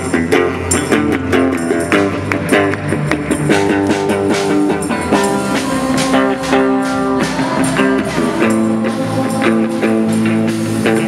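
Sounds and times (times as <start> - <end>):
drum kit beat: 0.0 - 11.0
electric guitar notes: 0.0 - 11.0.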